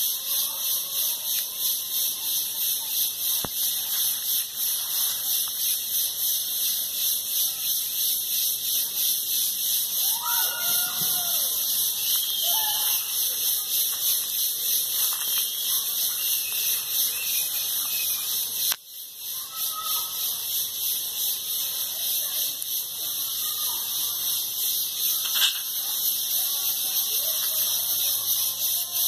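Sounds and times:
high-pitched insect chorus: 0.0 - 29.0
whistled bird calls: 10.1 - 13.3, 15.0 - 18.7.

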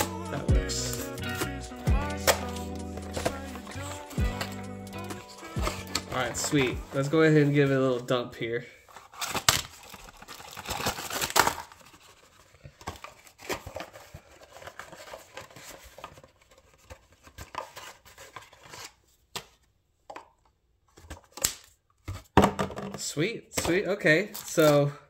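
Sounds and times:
cardboard tearing and rustling: 5.4 - 8.1, 8.9 - 19.0.

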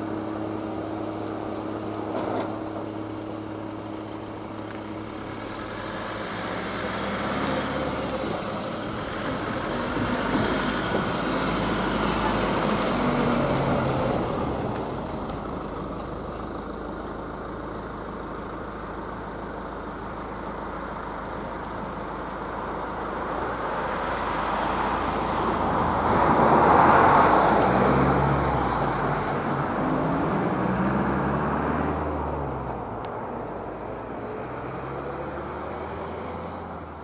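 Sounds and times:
vehicle driving past: 23.8 - 37.0.

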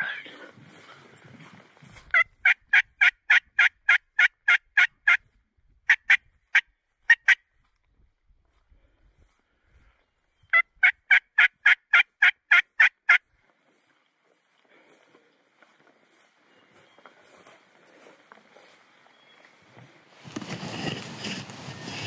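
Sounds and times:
turkey call yelps: 2.1 - 5.2, 10.5 - 13.2.

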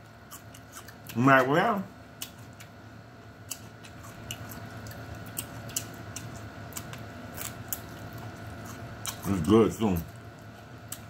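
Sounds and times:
faint low hum: 0.0 - 11.0
chewing crisp celery: 0.2 - 1.5, 3.4 - 11.0.

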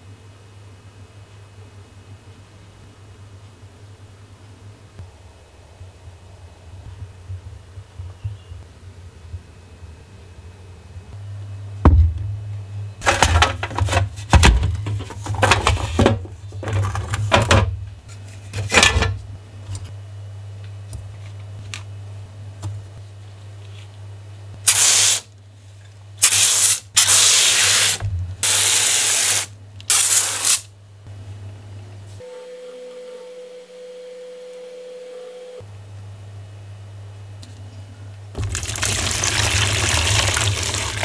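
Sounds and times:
steady low hum: 0.0 - 29.9.

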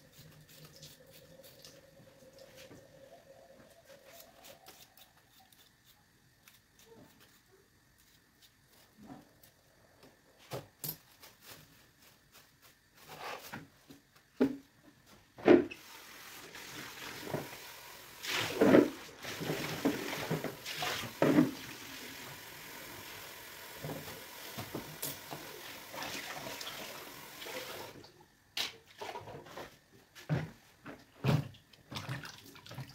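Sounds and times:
kitchen tap running: 15.7 - 28.1
water splashing on potato: 31.9 - 32.9.

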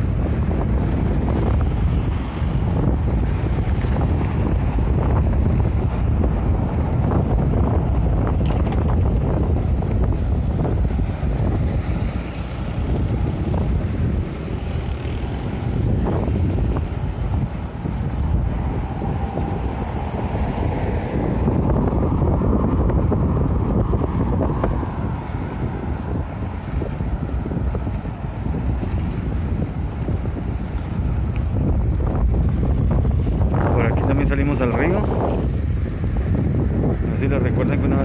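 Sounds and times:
road traffic: 0.0 - 38.0
wind buffeting microphone: 0.0 - 38.0
car passing by: 18.6 - 26.6.

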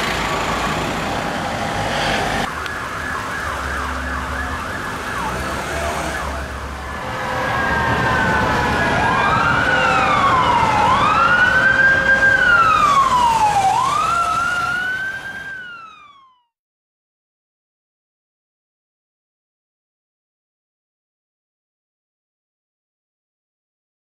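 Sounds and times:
police siren wailing: 0.3 - 16.6.

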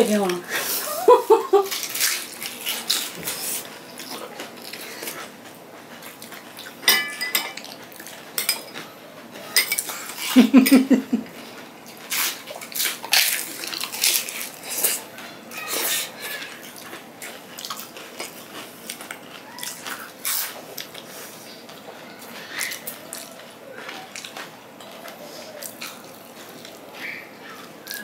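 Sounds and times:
spoon clinking against bowls: 6.8 - 7.7, 8.4 - 8.8, 9.5 - 9.9
crisp shells crunching: 12.1 - 15.0.

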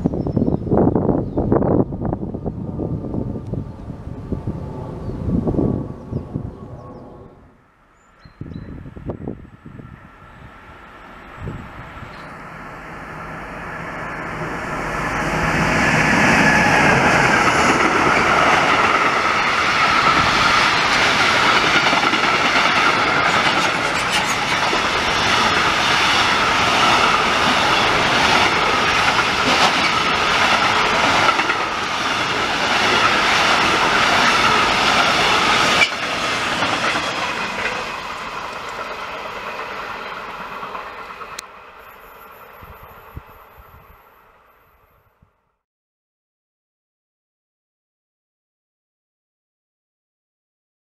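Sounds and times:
freight train wheels on rails: 8.2 - 44.8
wheels clattering over rail joints: 17.4 - 41.4.

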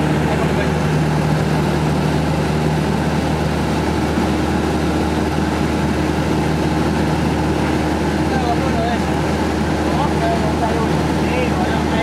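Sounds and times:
airplane engine drone: 0.0 - 12.0.

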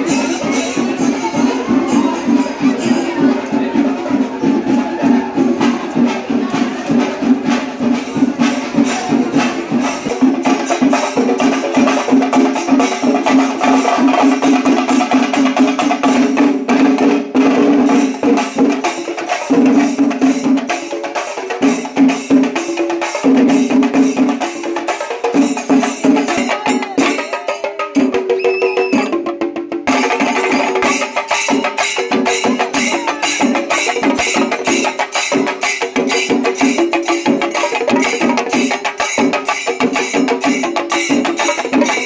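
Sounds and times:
fast dense drum strokes: 0.0 - 27.4.

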